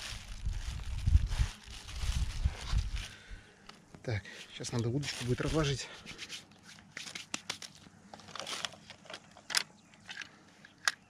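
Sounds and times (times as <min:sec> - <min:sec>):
fishing tackle clicks and rustles: 0:04.8 - 0:11.0.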